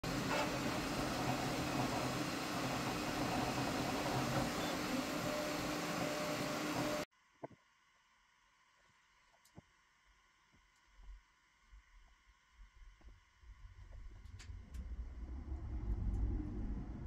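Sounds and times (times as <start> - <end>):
printer fans whirring: 0.0 - 7.1
low hum: 11.0 - 17.0.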